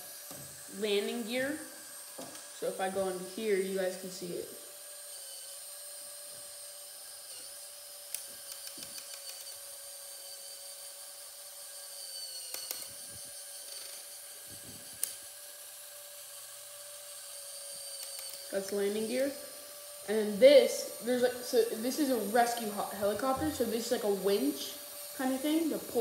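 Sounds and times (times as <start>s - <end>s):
small electric motor whining: 0.0s - 26.0s
sharp plastic clicks: 8.1s - 9.5s, 12.5s - 13.0s.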